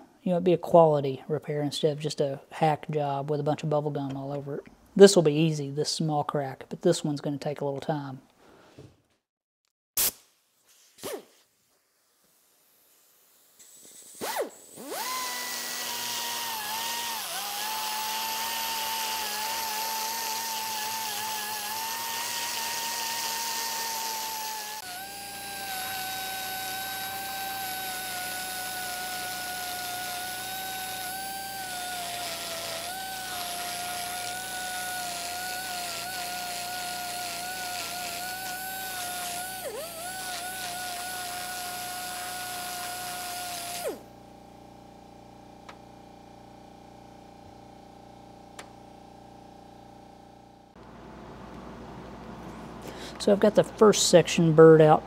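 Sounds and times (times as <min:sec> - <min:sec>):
die grinder whining: 0:14.2 - 0:44.2.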